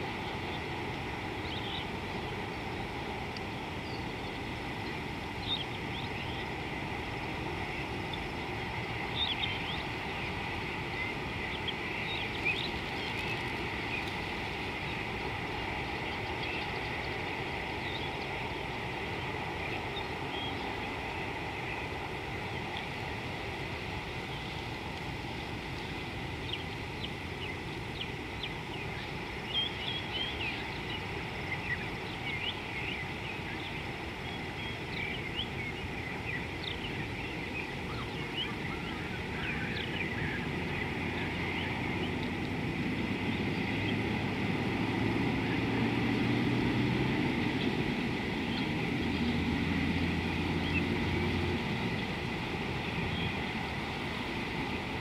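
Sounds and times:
small birds chirping: 0:07.7 - 0:23.0
low engine drone: 0:40.4 - 0:55.0.

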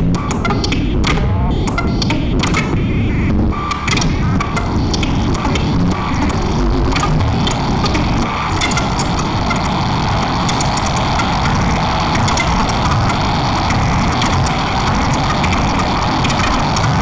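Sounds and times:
electronic noise texture: 0:00.0 - 0:17.0
crackling clicks: 0:00.1 - 0:02.8, 0:03.6 - 0:17.0.

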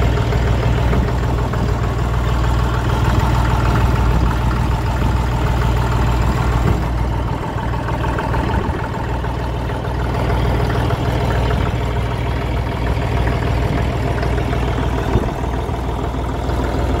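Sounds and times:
diesel tractor engine idling: 0:00.0 - 0:17.0.

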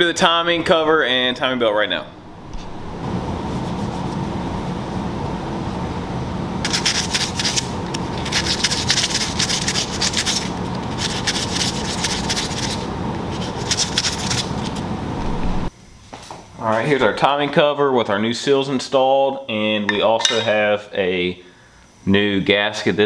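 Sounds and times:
steady hum: 0:00.0 - 0:16.6
rag rubbing on metal: 0:06.7 - 0:14.8
sanding disc scuffing metal: 0:06.7 - 0:14.8.

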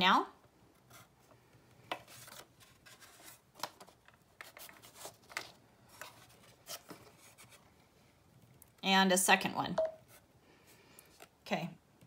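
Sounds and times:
paper rustling: 0:01.9 - 0:07.6.

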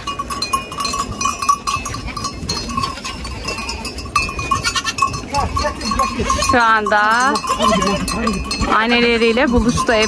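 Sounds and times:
goat bells clinking: 0:00.0 - 0:10.0
goat bleating: 0:04.6 - 0:05.1.

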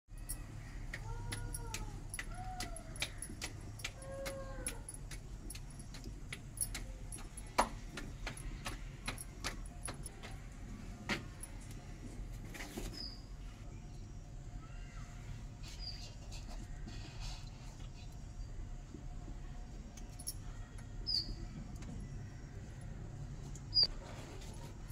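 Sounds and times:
hands slapping dough: 0:00.8 - 0:10.5.

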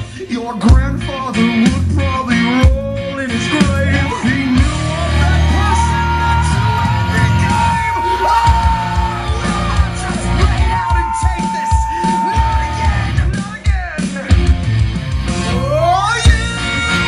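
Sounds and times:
loud music with steady bass: 0:00.0 - 0:17.0
person yelling a sung vocal: 0:10.5 - 0:13.2.

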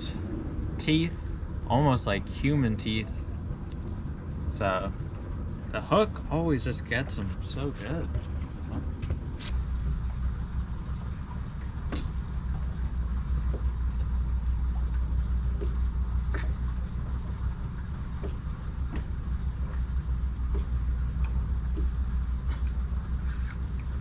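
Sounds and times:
faint clicks and taps: 0:18.1 - 0:23.9.

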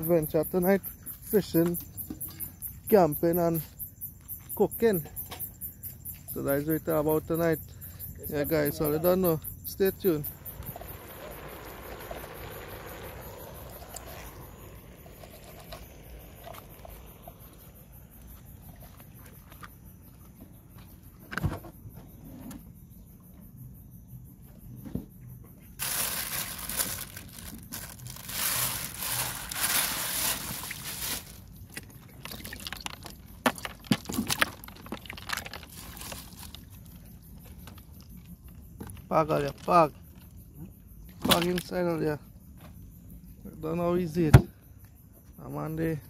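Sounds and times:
water sloshing in a cooler: 0:25.8 - 0:42.8.

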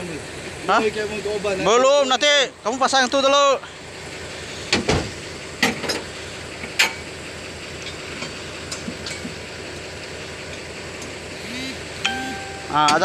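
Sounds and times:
engine hum: 0:00.0 - 0:13.0
hand tools clinking on metal: 0:12.4 - 0:13.0.

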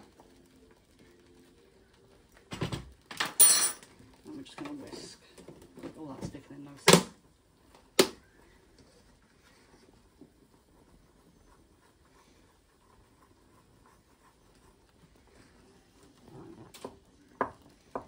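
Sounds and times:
whisk scratching in saucepan: 0:08.2 - 0:18.0.

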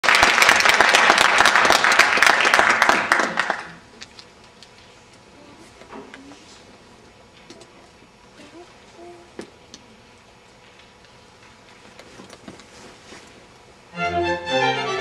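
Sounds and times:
audience applauding: 0:00.0 - 0:03.9.

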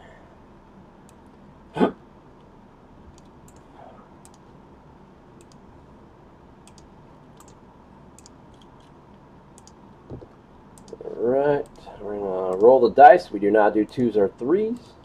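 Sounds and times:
computer keyboard and mouse clicking: 0:03.1 - 0:04.5, 0:05.4 - 0:05.6, 0:06.6 - 0:07.6, 0:08.2 - 0:08.9, 0:09.5 - 0:11.8, 0:13.9 - 0:14.9.

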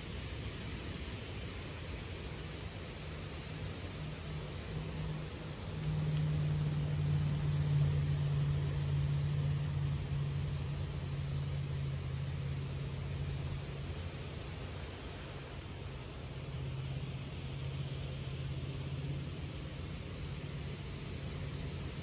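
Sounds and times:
low engine hum: 0:00.0 - 0:22.0
soft hiss: 0:00.0 - 0:22.0.

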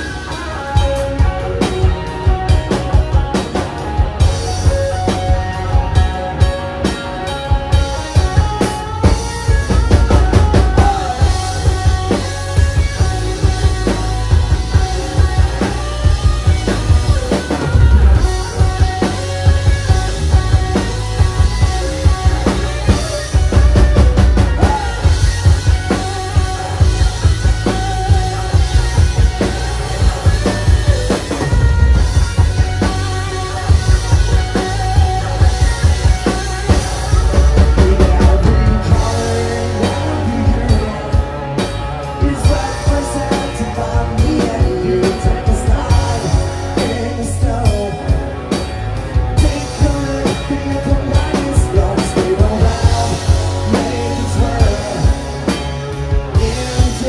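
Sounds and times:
drums steady beat: 0:00.0 - 0:57.0
rock band playing: 0:00.0 - 0:57.0
person singing into microphone: 0:10.1 - 0:12.2, 0:37.4 - 0:48.6, 0:49.3 - 0:55.6, 0:56.2 - 0:57.0.

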